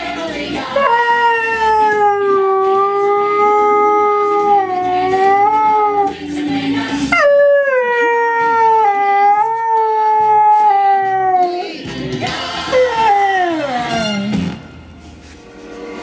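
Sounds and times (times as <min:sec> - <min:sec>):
tv theme music: 0:00.0 - 0:16.0
dog howling: 0:00.7 - 0:06.2, 0:07.1 - 0:11.8, 0:12.6 - 0:14.3.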